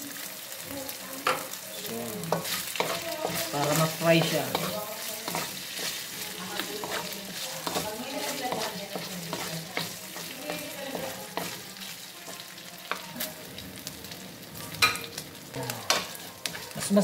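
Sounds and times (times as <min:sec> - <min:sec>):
meat sizzling in a wok: 0:00.0 - 0:17.0
spatula scraping a pan: 0:02.2 - 0:13.4.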